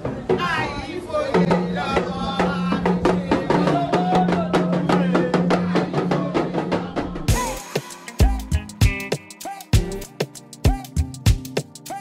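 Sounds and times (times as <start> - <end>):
quick even percussion strikes: 7.1 - 12.0.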